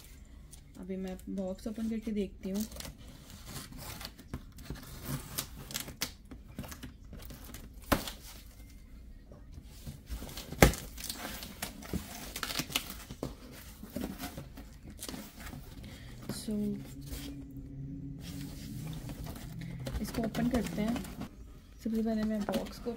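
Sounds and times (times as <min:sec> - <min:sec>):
scissors cutting packing tape: 0:03.6 - 0:08.2
cardboard flaps crinkling: 0:09.8 - 0:17.4, 0:18.2 - 0:21.3
tape tearing: 0:10.3 - 0:15.6.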